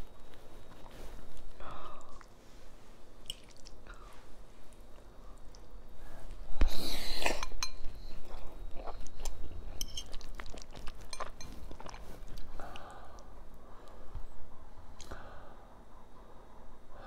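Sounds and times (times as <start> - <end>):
wet chewing: 8.2 - 13.3.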